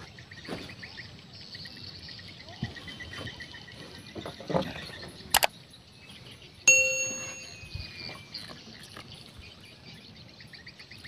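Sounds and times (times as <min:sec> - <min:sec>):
small metal bell ding: 0:06.7 - 0:08.0.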